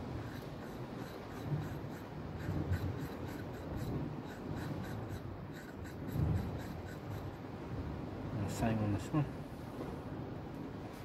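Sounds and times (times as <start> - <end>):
hook scraping on sharpening stone: 0.3 - 7.4.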